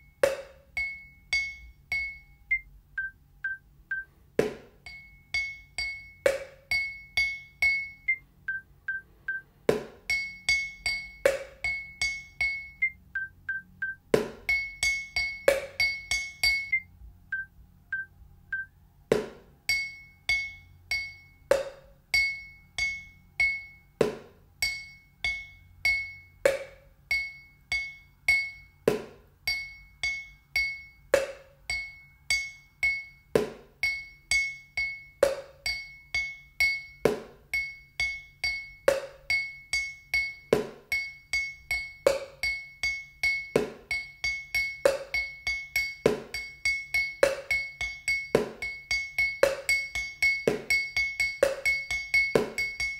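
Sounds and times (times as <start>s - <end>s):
sticks striking a ringing glass: 0.0s - 2.7s, 4.8s - 8.2s, 10.0s - 13.0s, 13.6s - 18.1s, 19.2s - 52.9s
short beeps: 16.7s - 18.7s.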